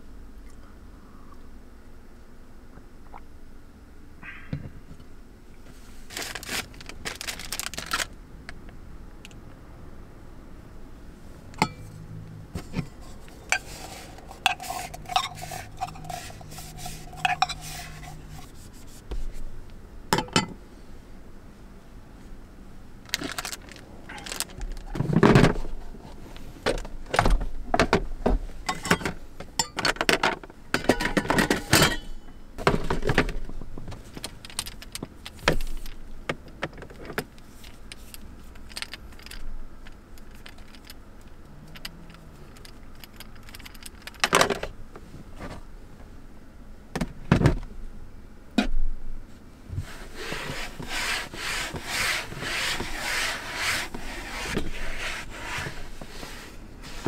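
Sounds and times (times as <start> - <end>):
quick rubbing strokes: 13.0 - 19.4, 49.8 - 57.0
clicks knocks and rustles: 32.6 - 44.8.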